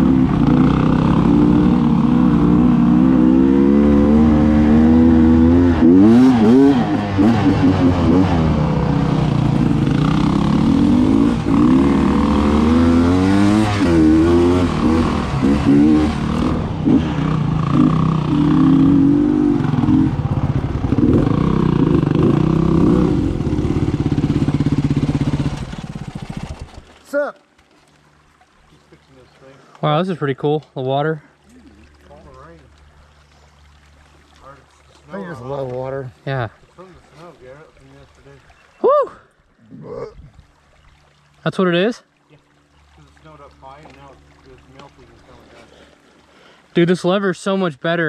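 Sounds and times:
dirt bike engine revving: 0.0s - 26.8s.

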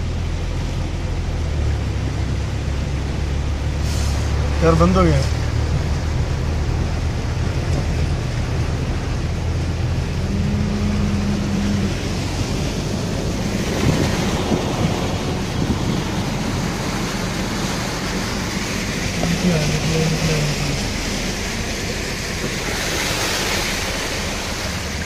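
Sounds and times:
engine hum: 0.0s - 25.0s
water splashing against vehicle: 0.0s - 25.0s
steady low tone: 5.5s - 13.6s.

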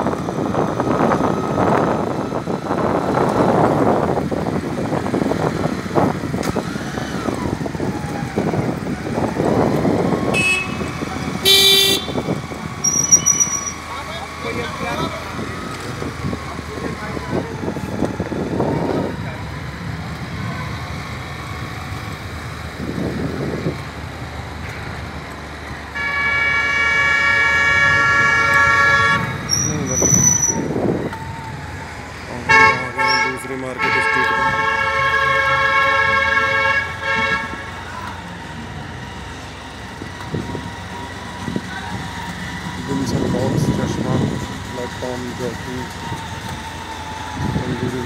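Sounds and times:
road traffic hum: 0.0s - 48.0s
vehicle horn honking: 10.3s - 13.8s, 26.0s - 30.6s, 32.4s - 37.8s.

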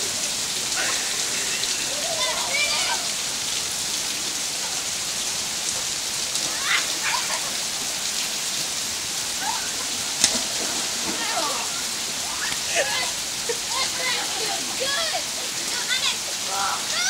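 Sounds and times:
heavy rain falling: 0.0s - 17.0s
distant children shouting: 0.6s - 3.6s, 6.4s - 7.8s, 9.3s - 10.1s.

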